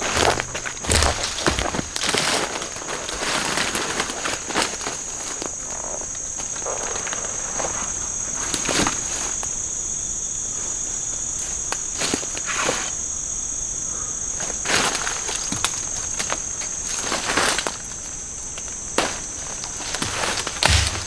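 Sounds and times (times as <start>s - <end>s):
footsteps on forest floor: 0.0s - 8.0s, 18.6s - 21.0s
high-pitched insect drone: 0.0s - 21.0s.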